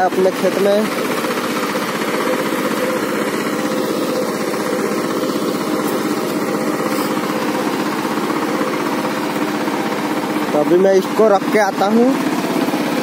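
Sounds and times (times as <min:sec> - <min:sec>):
diesel tiller engine running: 0:00.0 - 0:13.0.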